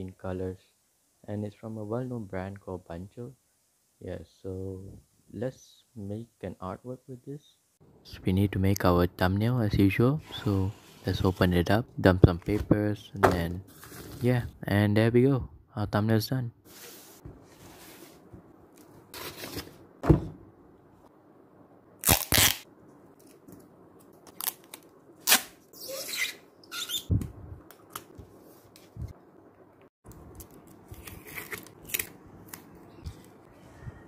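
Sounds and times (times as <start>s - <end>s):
masking tape ripping: 22.0s - 22.6s, 24.3s - 26.2s.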